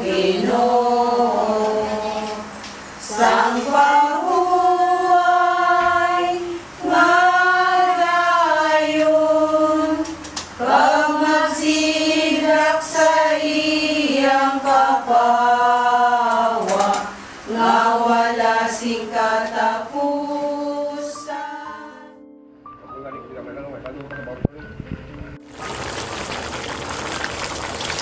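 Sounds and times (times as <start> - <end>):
women singing a hymn: 0.0 - 22.2.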